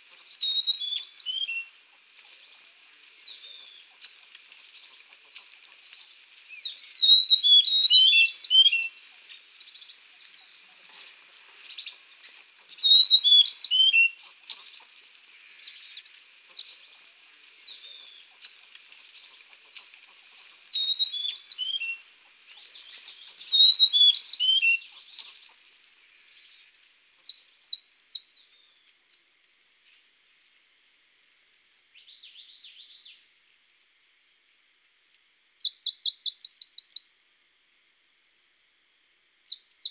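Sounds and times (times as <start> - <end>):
songbirds chirping: 0.0 - 39.9.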